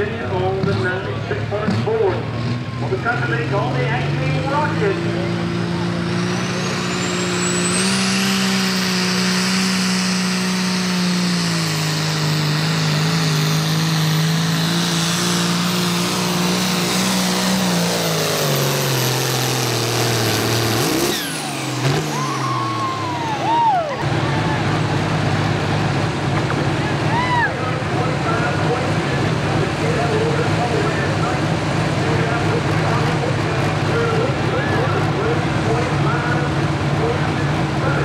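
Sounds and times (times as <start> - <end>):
diesel tractor engine under load: 0.0 - 38.0
high turbo whistle: 6.1 - 12.9, 21.1 - 24.0.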